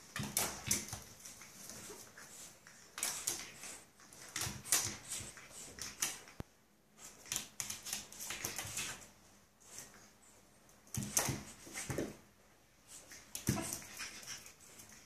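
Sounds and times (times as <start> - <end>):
dog claws clicking on floor: 0.0 - 9.1, 10.8 - 12.1.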